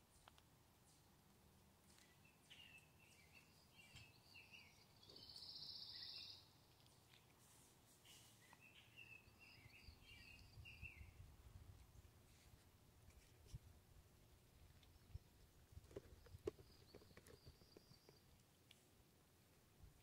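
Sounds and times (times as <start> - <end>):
faint songbirds chirping: 0.0 - 20.0.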